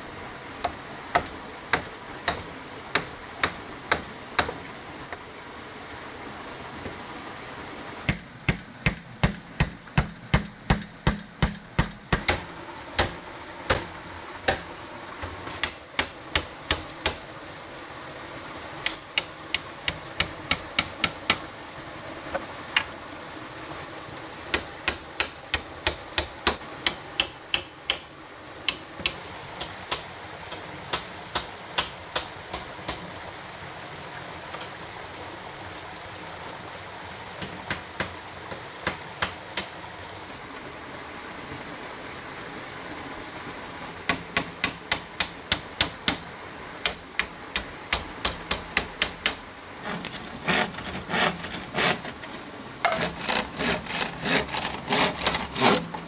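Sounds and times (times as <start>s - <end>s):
stream rushing: 0.0s - 56.0s
hammer striking bamboo and wood: 0.6s - 4.6s, 8.1s - 17.2s, 18.8s - 21.5s, 24.5s - 33.0s, 37.4s - 39.7s, 44.1s - 46.2s, 46.8s - 56.0s.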